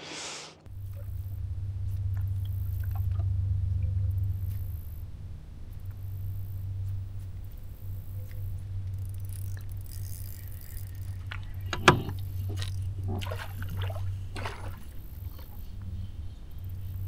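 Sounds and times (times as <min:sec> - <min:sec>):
steady low hum: 0:00.5 - 0:17.0
fishing gear clicking and rattling: 0:05.8 - 0:13.8.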